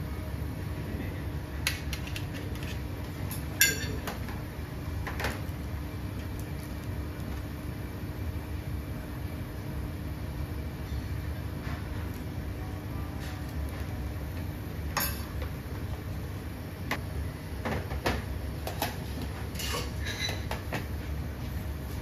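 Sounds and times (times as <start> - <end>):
steady low hum: 0.0 - 22.0
dishes and utensils clinking: 2.0 - 4.2, 18.6 - 20.8.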